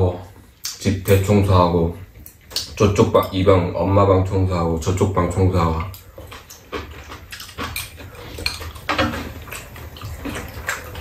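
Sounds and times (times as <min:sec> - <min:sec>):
chewing: 0:05.6 - 0:11.0.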